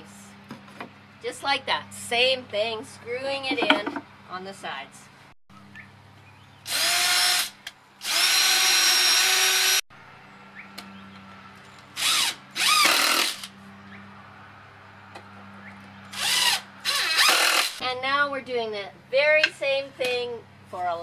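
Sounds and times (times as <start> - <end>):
cordless drill driving screws: 6.7 - 9.8, 12.0 - 13.5, 16.2 - 17.8.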